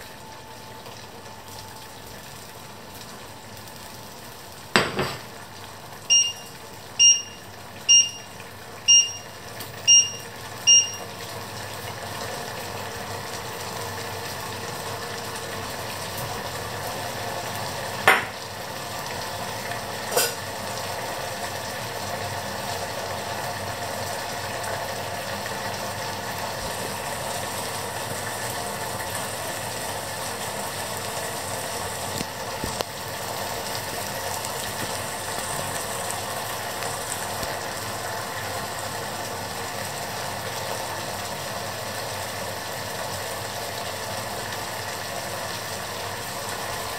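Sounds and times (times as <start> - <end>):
food sizzling in pots: 1.9 - 46.9
hob touch controls beeping: 6.1 - 8.3, 8.9 - 9.3, 9.9 - 11.0.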